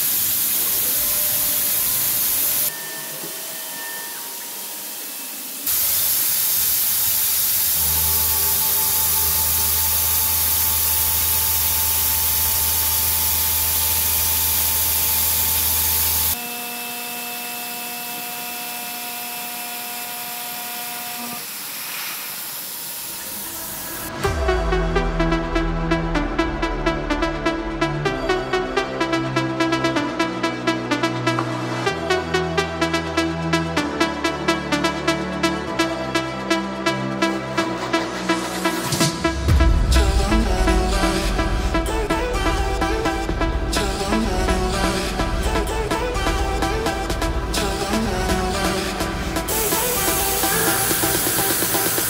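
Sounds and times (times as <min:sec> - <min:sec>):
spray hissing: 0:00.0 - 0:03.3, 0:04.3 - 0:16.4, 0:44.7 - 0:52.0.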